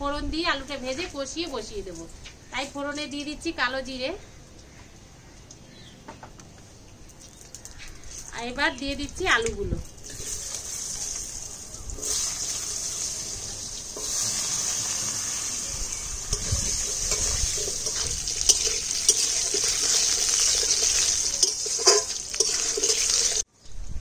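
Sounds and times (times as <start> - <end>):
potatoes sizzling in oil: 7.8 - 23.5.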